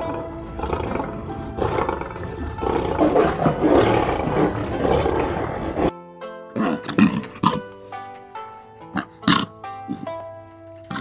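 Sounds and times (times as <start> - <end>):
tigers roaring: 0.0 - 5.9.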